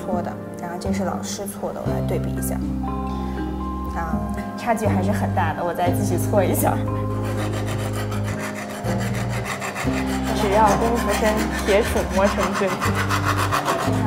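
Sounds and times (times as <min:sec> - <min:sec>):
metal rod rubbing by hand: 0:06.9 - 0:14.0.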